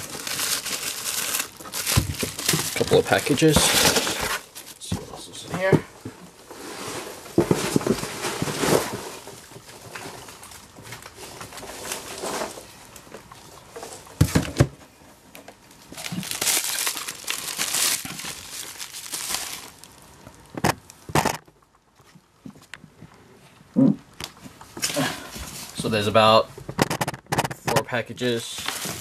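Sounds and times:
bubble wrap crinkling: 0.0s - 4.8s, 15.7s - 21.4s.

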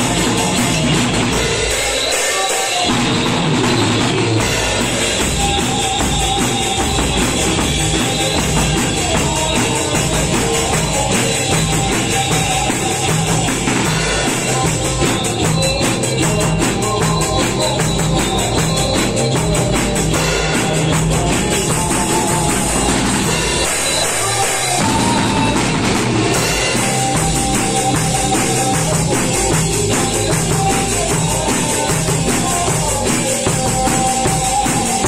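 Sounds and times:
drum kit with hi-hat strokes: 0.0s - 35.0s
electric guitar rock groove: 0.0s - 35.0s.

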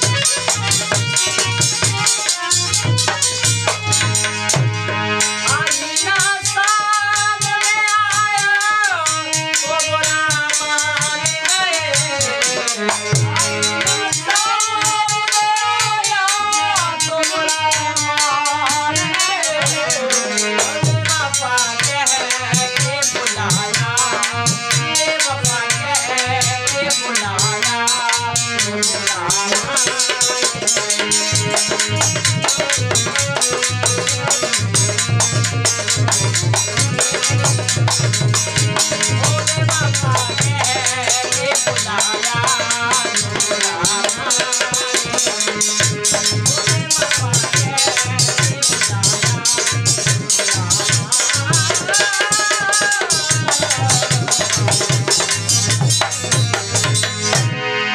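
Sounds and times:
harmonium melody: 0.0s - 57.9s.

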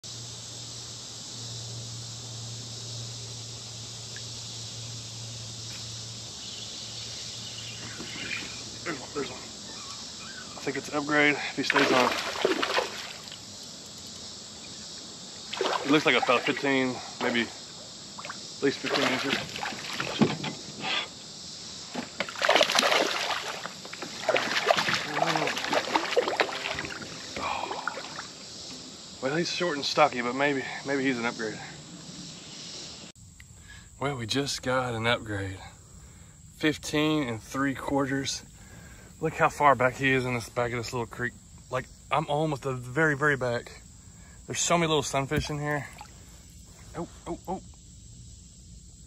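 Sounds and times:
insects buzzing: 0.0s - 49.0s
water splashing beside kayak: 11.6s - 13.5s, 15.4s - 17.4s, 18.2s - 20.5s, 21.9s - 28.4s, 45.0s - 46.5s.

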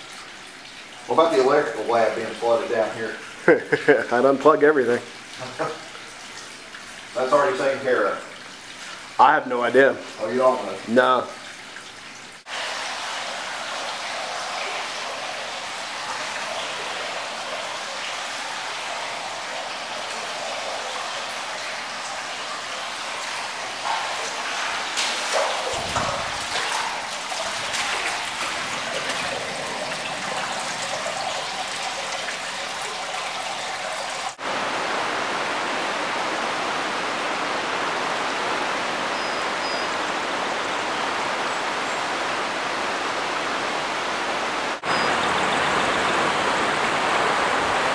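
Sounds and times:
floodwater rushing: 0.0s - 47.9s.

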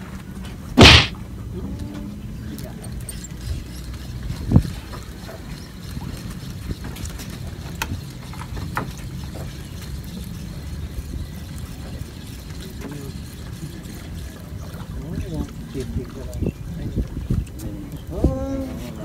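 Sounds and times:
wind buffeting microphone: 15.1s - 19.0s.

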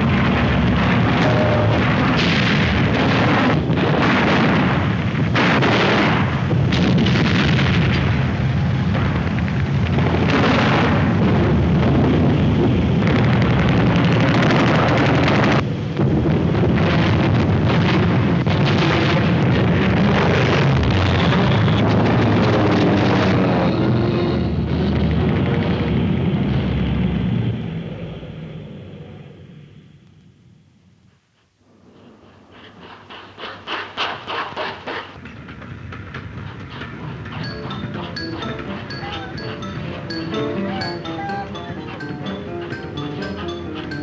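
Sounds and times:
anti-aircraft gunfire: 0.0s - 15.6s
explosions: 0.0s - 23.7s
low rumble: 0.0s - 29.9s.

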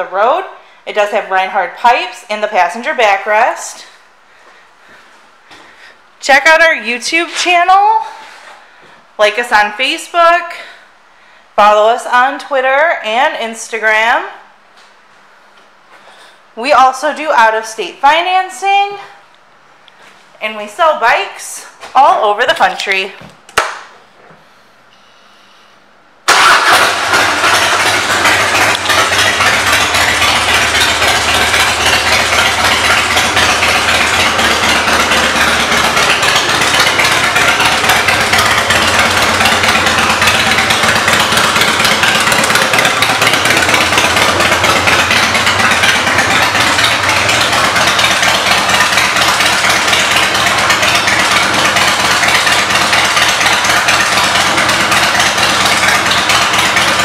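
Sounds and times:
motorcycle engine idling: 26.4s - 57.0s.

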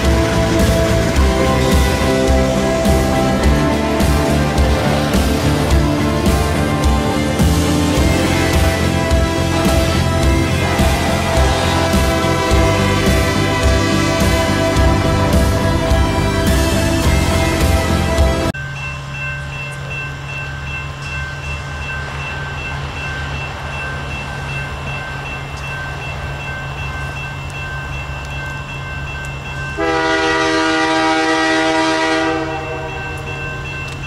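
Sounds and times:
crossing bell ringing: 0.0s - 34.0s
diesel locomotive rumble: 0.0s - 34.0s
locomotive horn blast: 7.9s - 18.5s, 29.8s - 32.9s.

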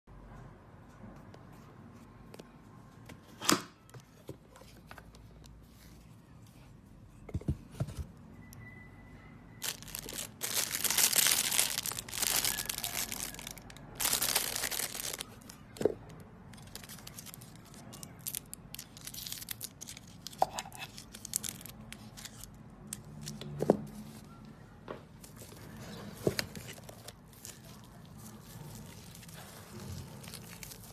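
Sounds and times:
plastic film peeling and crinkling: 9.6s - 15.8s, 16.4s - 23.5s, 25.2s - 30.9s.

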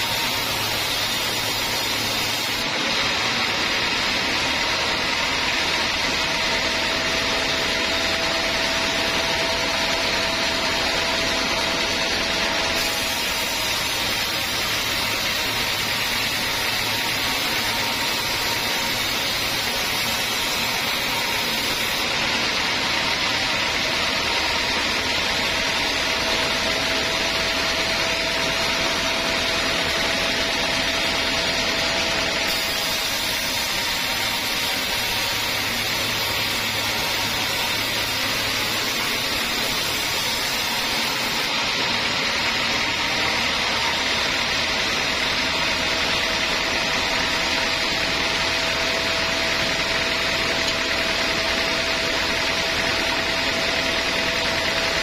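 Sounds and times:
band saw blade sawing wood: 0.0s - 3.8s, 4.6s - 42.0s.

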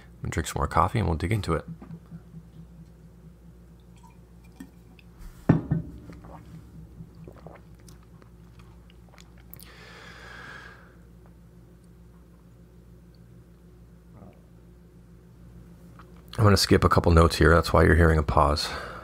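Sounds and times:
faint electrical hum: 0.0s - 19.0s
mug knocking: 1.4s - 8.0s
mouth clicks and swallows: 6.0s - 9.7s.

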